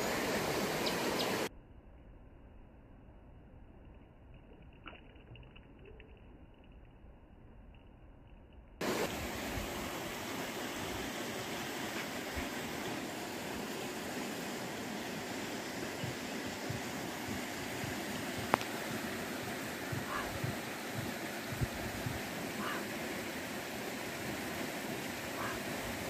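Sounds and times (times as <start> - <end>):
creek water rushing over rocks: 0.0 - 1.5, 8.8 - 26.0.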